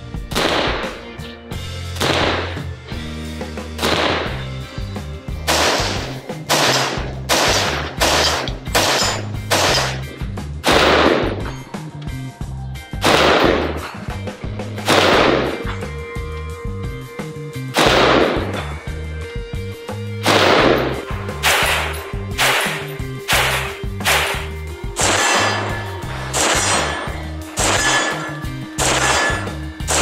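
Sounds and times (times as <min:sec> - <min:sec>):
background music with bass: 0:00.0 - 0:30.0
rifle shots: 0:00.3 - 0:01.1, 0:02.0 - 0:02.7, 0:03.8 - 0:04.6, 0:05.4 - 0:11.5, 0:13.0 - 0:14.0, 0:14.8 - 0:15.8, 0:17.8 - 0:18.6, 0:20.2 - 0:30.0.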